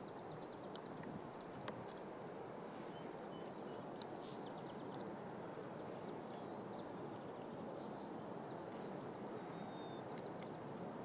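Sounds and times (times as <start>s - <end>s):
otter chewing fish: 0.2s - 2.2s, 2.9s - 6.5s.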